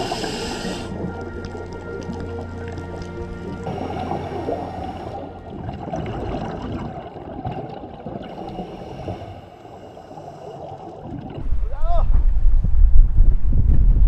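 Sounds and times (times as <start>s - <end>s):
water gurgling and sloshing: 0.0s - 14.0s.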